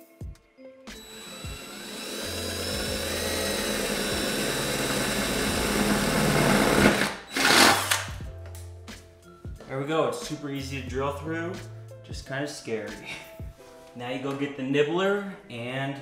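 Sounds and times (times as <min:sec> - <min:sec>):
cordless drill whining through metal: 0:01.0 - 0:08.2.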